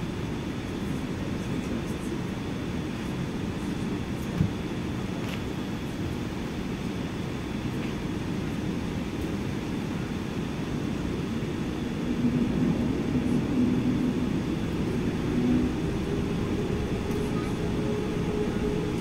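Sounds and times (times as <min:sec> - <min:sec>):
aircraft cabin low rumble: 0:00.0 - 0:19.0
low hum: 0:11.1 - 0:19.0.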